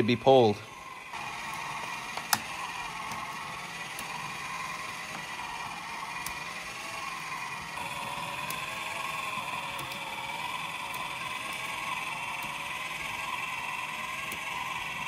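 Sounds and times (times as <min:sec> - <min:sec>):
plastic gear train whine: 0:00.0 - 0:15.0.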